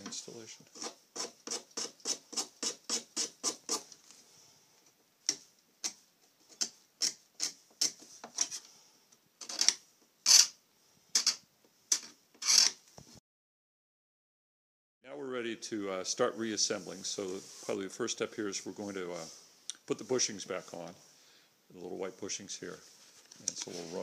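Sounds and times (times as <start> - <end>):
hand file scraping metal: 0.7 - 3.9, 5.9 - 8.7, 9.4 - 10.6, 11.2 - 12.8.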